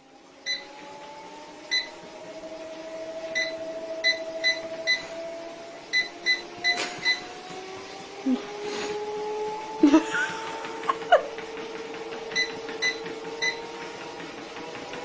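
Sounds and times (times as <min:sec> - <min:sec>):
treadmill motor whining: 0:00.0 - 0:15.0
treadmill click: 0:00.2 - 0:15.0
short electronic beeps: 0:05.9 - 0:07.3.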